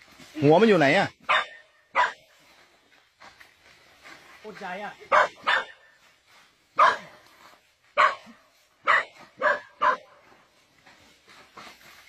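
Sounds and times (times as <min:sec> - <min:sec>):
dog barking: 0:01.2 - 0:02.3, 0:05.1 - 0:05.9, 0:06.8 - 0:07.2, 0:08.0 - 0:10.2.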